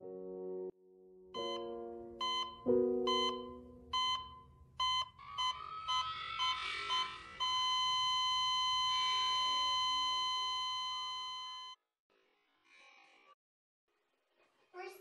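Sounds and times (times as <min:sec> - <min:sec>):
heart monitor beeping: 0:01.4 - 0:11.8.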